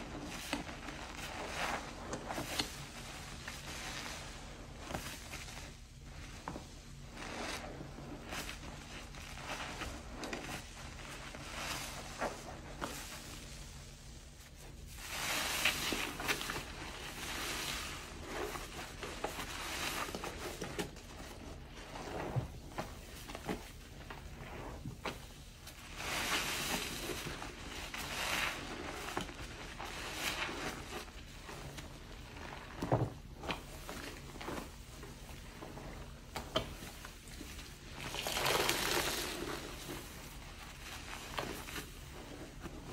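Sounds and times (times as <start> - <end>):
wet sponge squelching: 0.0 - 42.9
foam fizzing and crackling: 33.4 - 42.9.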